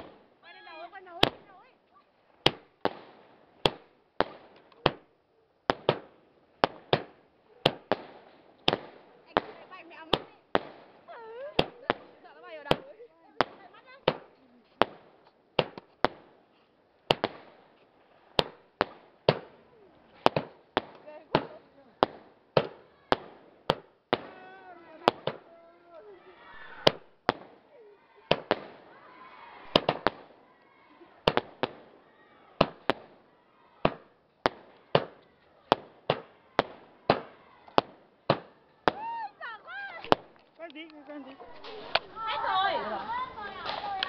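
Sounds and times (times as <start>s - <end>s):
fireworks banging: 0.0s - 44.0s.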